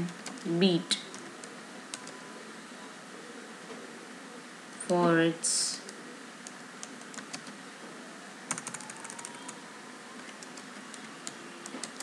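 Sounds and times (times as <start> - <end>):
computer keyboard typing: 0.0 - 2.2, 6.4 - 7.6, 8.5 - 9.6, 10.2 - 12.0.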